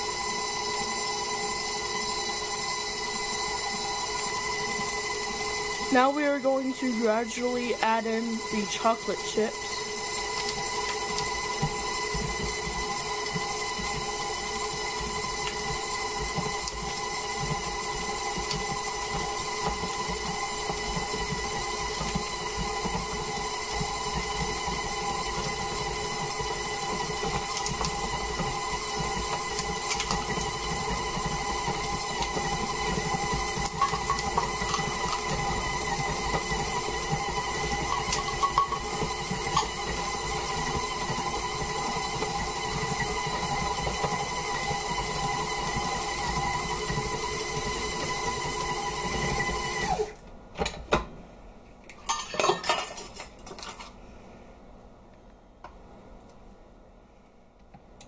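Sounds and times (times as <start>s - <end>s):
stand mixer motor running: 0.0s - 50.2s
beater clanking on steel bowl: 33.7s - 35.3s, 37.7s - 39.9s.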